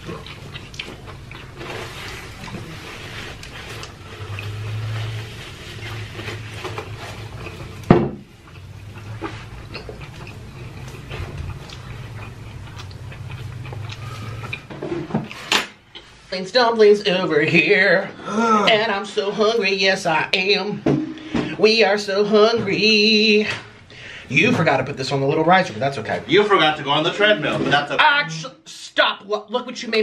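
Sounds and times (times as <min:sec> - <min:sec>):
person chewing food: 0:00.0 - 0:16.2
low steady hum: 0:00.0 - 0:28.5.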